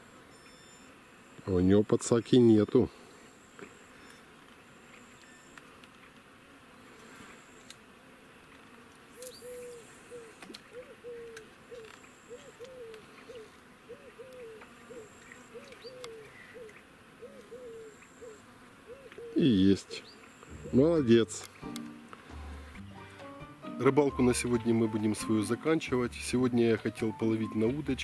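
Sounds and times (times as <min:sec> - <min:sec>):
faint short hooting calls: 0:09.2 - 0:20.9.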